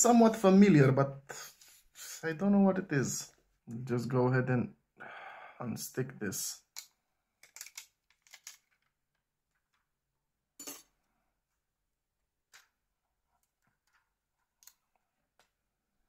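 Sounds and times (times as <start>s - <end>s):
small phone parts clicking: 6.7s - 8.9s.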